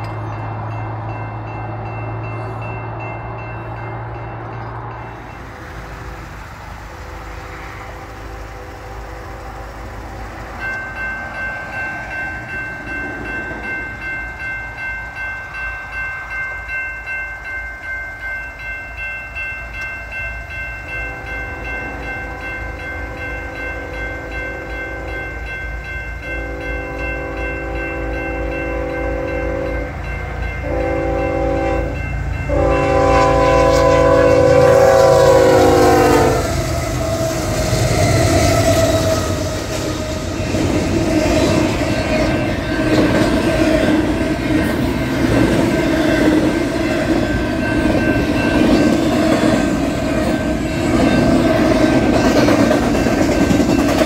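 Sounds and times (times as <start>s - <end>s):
crossing warning bell ringing: 0.0s - 54.0s
train rumbling past: 0.0s - 54.0s
locomotive air horn blasts: 26.2s - 30.0s, 30.6s - 37.4s.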